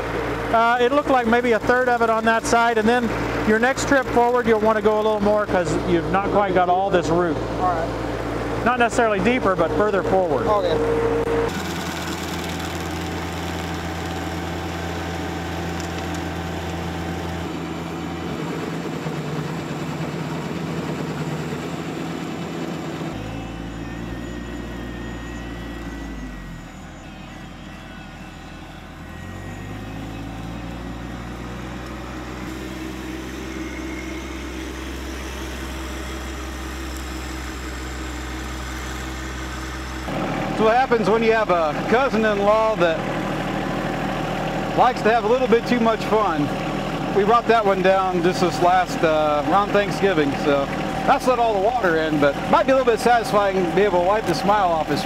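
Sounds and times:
stump grinder grinding: 0:00.0 - 0:55.0
tractor engine running: 0:00.0 - 0:55.0
small gas engine tool: 0:11.4 - 0:55.0.

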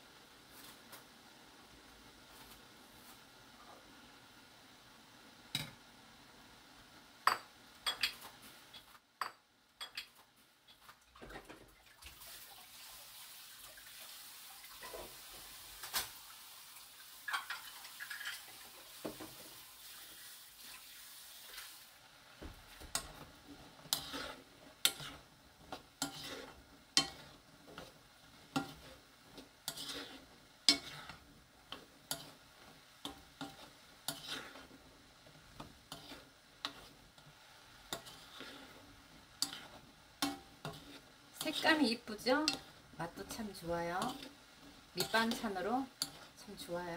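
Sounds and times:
liquid bubbling with soft hiss: 0:10.3 - 0:46.9.

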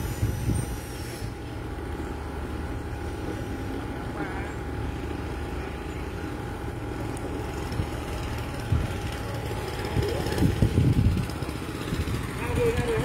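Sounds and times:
steady low rumble: 0:00.0 - 0:13.0
small motorbike engine running: 0:07.0 - 0:13.0.

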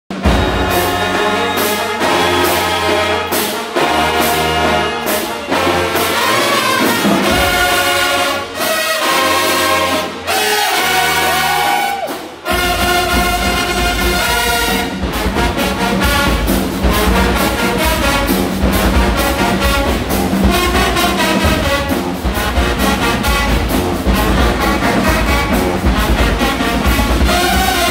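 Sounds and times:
drum and cymbal hits: 0:00.1 - 0:27.9
marching band brass chords: 0:00.1 - 0:27.9.

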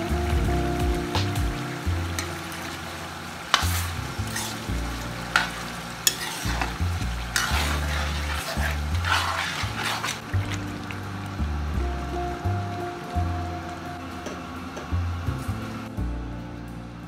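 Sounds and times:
vegetables sizzling: 0:00.0 - 0:15.9
metal spatula scraping a wok: 0:03.5 - 0:10.2.

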